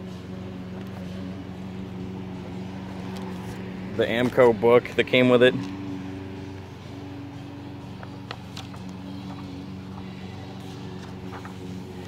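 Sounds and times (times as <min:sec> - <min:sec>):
steady low hum: 0:00.0 - 0:12.0
pages being turned: 0:00.7 - 0:01.2, 0:02.9 - 0:04.6, 0:07.9 - 0:12.0
paper crackles: 0:10.6 - 0:12.0.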